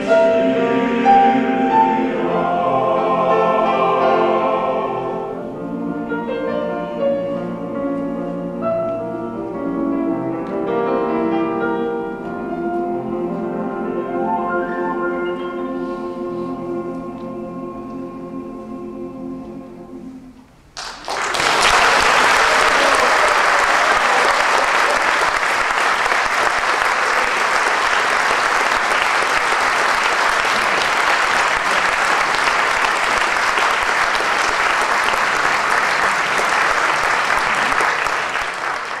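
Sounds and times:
audience applause: 20.8 - 39.0.

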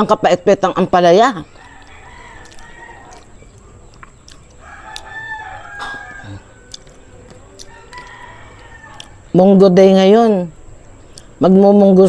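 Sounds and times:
rooster crowing: 1.5 - 3.6, 4.6 - 9.3.

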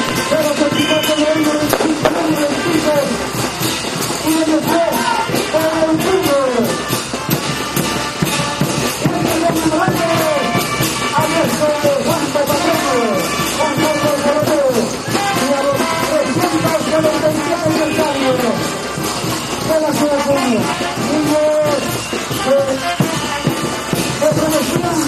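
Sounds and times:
lively band music: 0.0 - 25.0
rapid drumbeat: 0.0 - 25.0.

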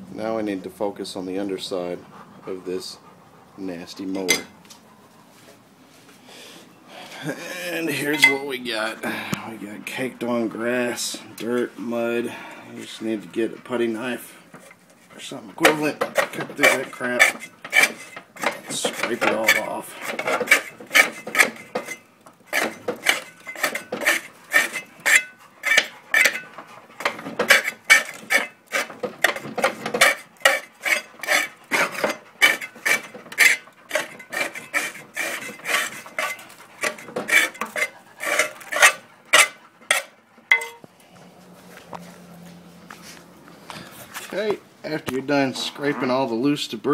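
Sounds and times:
scraper scraping metal: 13.3 - 40.8.

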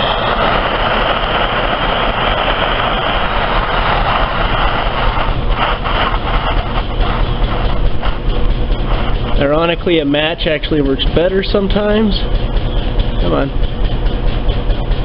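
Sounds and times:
crackles: 0.0 - 10.6
blowtorch flame hissing: 0.0 - 12.1.

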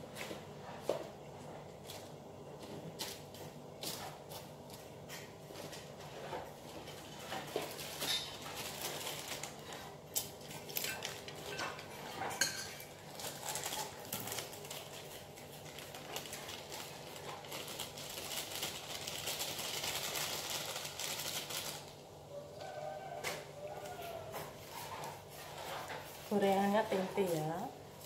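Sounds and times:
kitchen utensils and dishes clinking: 6.8 - 14.8
scraping and rustling: 23.2 - 27.8.

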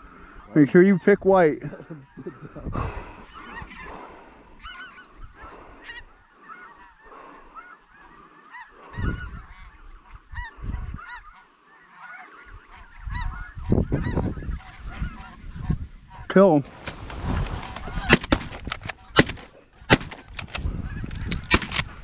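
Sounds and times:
geese honking: 0.0 - 20.0.

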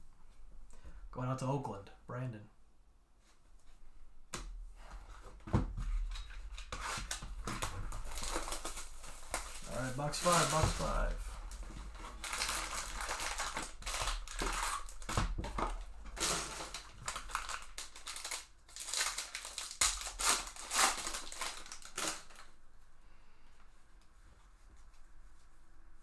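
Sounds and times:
foil wrapper crinkling: 6.5 - 22.5.

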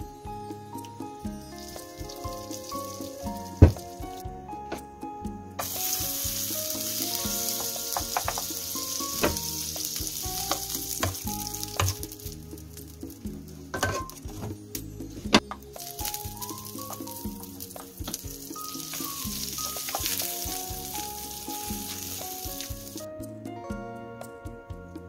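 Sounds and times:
bread sizzling in a pan: 5.6 - 13.1, 15.8 - 23.0.

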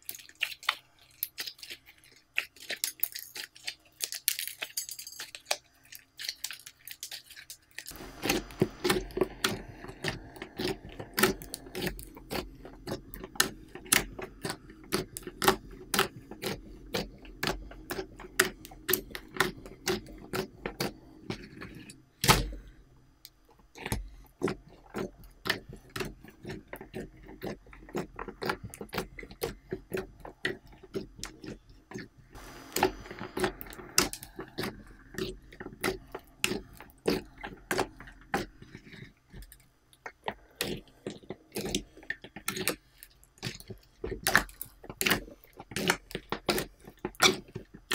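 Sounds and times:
slime being kneaded wet clicks: 39.5 - 47.9.

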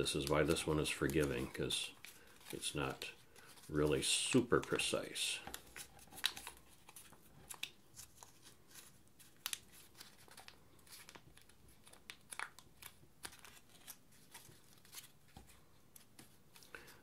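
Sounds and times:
paper bill crinkling: 0.1 - 15.2.

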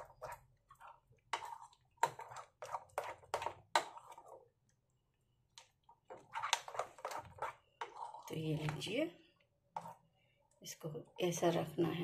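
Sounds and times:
spoon beating batter in a bowl: 0.0 - 4.8, 5.5 - 11.4.

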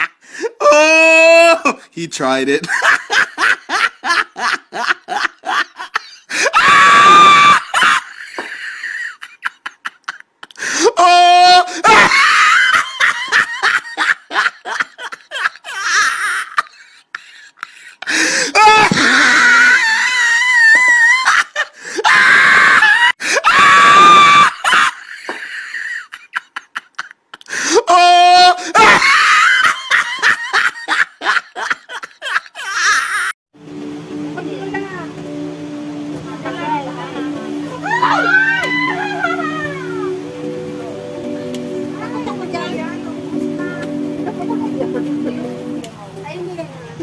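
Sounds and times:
person laughing: 2.6 - 23.6, 24.4 - 33.3, 38.8 - 40.0
high-pitched shriek of laughter: 6.4 - 9.2, 10.9 - 14.2, 18.6 - 26.2, 27.7 - 31.0, 37.8 - 40.1
high-pitched shrieking screams: 6.5 - 7.9, 18.6 - 21.3, 22.0 - 24.9, 37.8 - 40.1.

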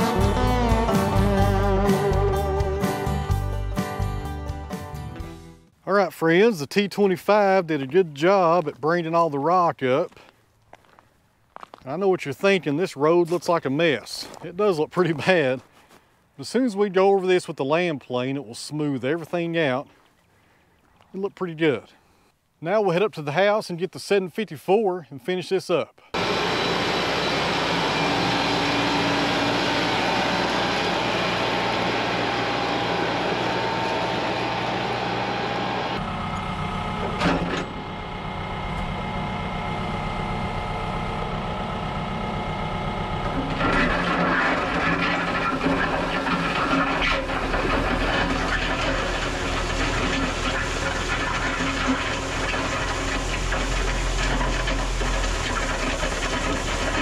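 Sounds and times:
tractor diesel engine running: 26.2 - 57.0.

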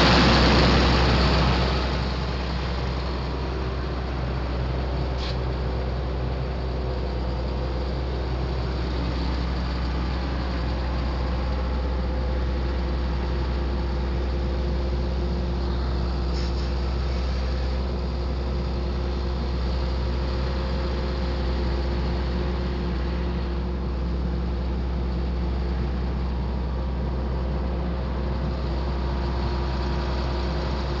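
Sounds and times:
tractor engine droning: 0.0 - 31.0.

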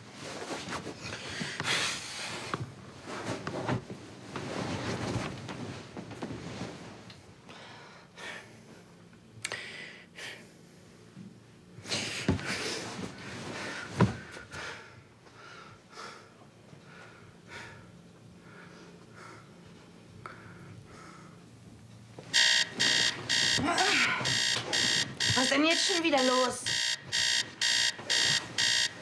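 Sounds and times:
bedclothes rustling: 0.0 - 7.4, 12.0 - 14.5.

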